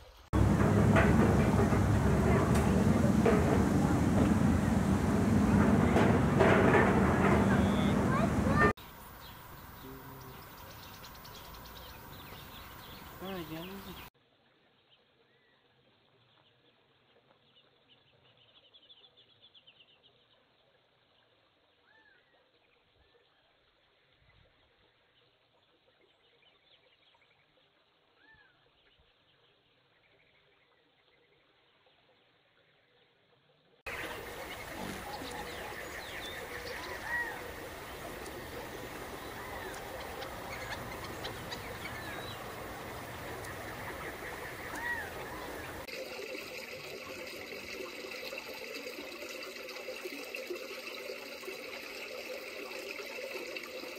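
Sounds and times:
steady background noise: 0.4 - 13.9, 33.9 - 45.9
high bird chirps: 33.9 - 45.9.

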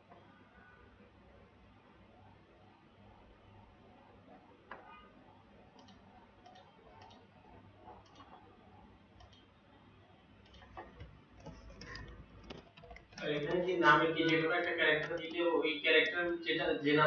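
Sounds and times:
keyboard and mouse clicks: 5.7 - 8.4, 9.2 - 9.5, 10.4 - 15.4.

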